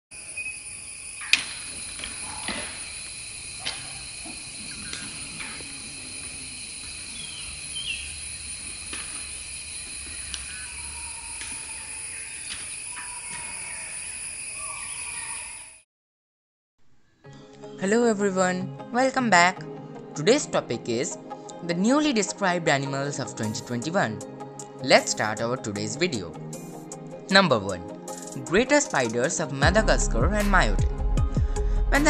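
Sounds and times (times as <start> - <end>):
insect chorus: 0.1 - 15.8, 28.0 - 30.5
bird call: 0.2 - 15.8.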